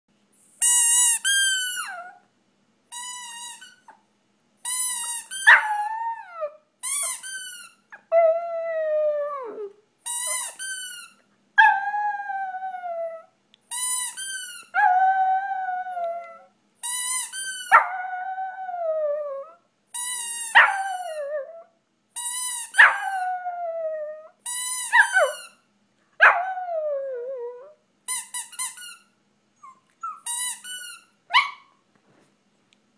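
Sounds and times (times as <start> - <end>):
puppy howling: 5.4 - 6.6, 8.0 - 10.4, 11.6 - 13.3, 14.8 - 16.5, 17.7 - 19.6, 26.2 - 27.8.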